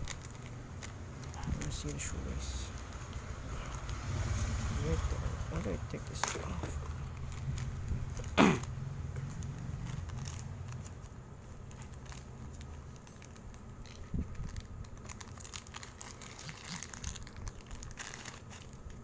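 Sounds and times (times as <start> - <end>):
plastic bag crinkling: 0.0 - 19.0.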